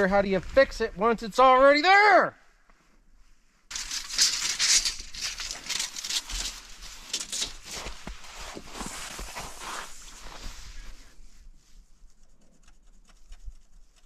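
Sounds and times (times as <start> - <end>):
tape measure rustling and scraping: 3.7 - 11.1.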